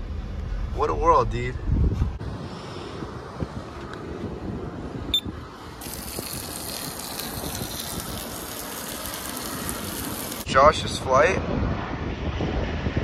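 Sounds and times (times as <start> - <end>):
water jets spraying: 5.8 - 10.5.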